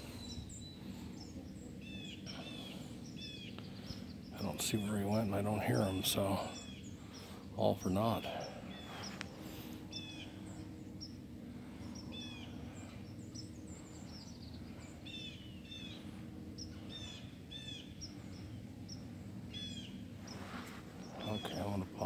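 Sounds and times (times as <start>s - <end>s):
low outdoor rumble: 0.0s - 22.0s
songbirds chirping: 0.0s - 22.0s.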